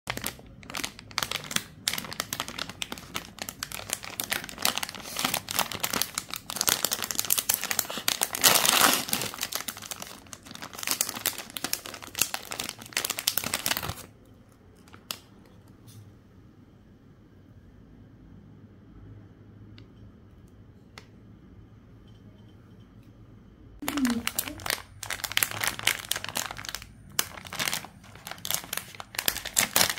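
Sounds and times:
wrapper seal tearing: 0:00.1 - 0:14.1, 0:23.8 - 0:29.9
plastic wrapper crinkling: 0:00.1 - 0:15.4, 0:23.8 - 0:29.9.

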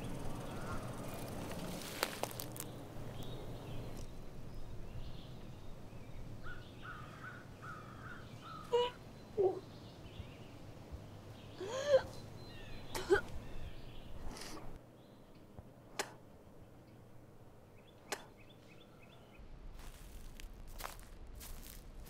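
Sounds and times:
woodland background: 0:00.0 - 0:22.0
sharp cracks: 0:00.8 - 0:03.3.

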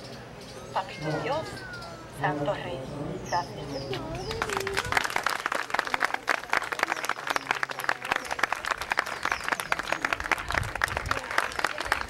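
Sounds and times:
audience applauding: 0:04.2 - 0:12.0.

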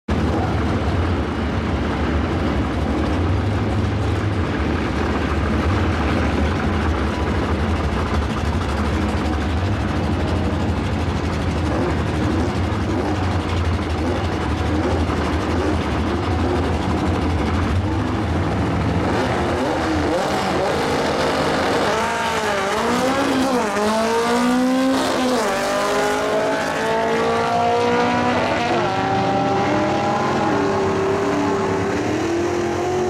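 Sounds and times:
drag car engines idling: 0:00.1 - 0:21.6.

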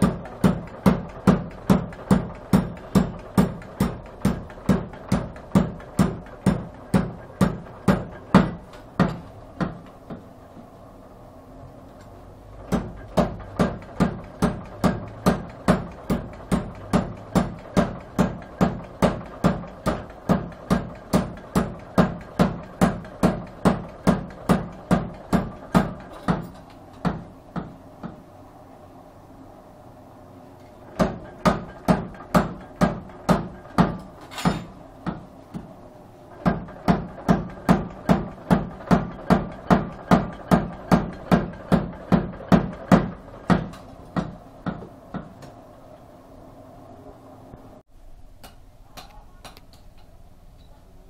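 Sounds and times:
power hammer pounding metal: 0:00.0 - 0:09.9, 0:12.5 - 0:28.2, 0:30.9 - 0:35.7, 0:36.3 - 0:45.3.

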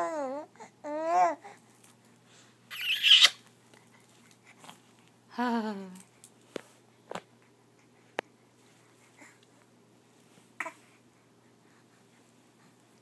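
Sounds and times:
baby cooing: 0:00.0 - 0:01.6.

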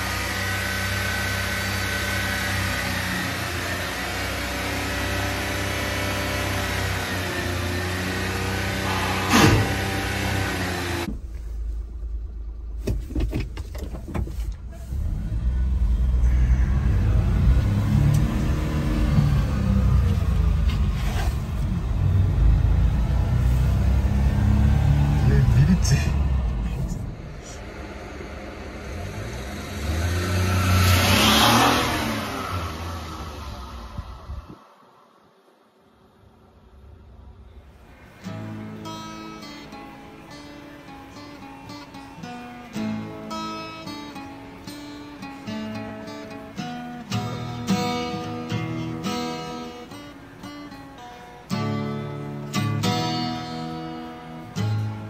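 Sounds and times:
small truck engine running: 0:00.0 - 0:12.8, 0:14.5 - 0:34.5
small truck driving past: 0:08.2 - 0:11.1, 0:15.0 - 0:35.3, 0:36.8 - 0:55.0
low rumble: 0:24.8 - 0:30.6, 0:32.4 - 0:35.2.

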